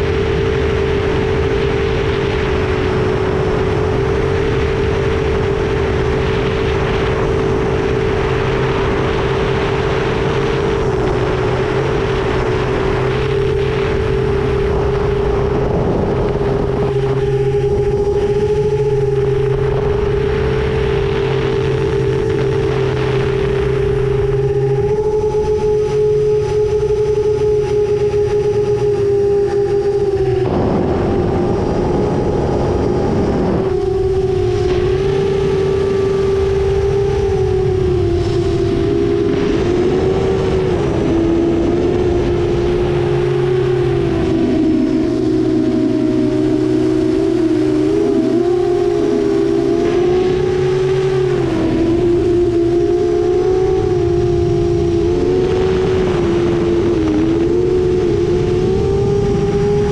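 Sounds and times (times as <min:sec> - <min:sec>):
drone propeller hum: 0:00.0 - 0:59.9
wind rushing past microphone: 0:00.0 - 0:59.9
rush of air: 0:30.3 - 0:35.6.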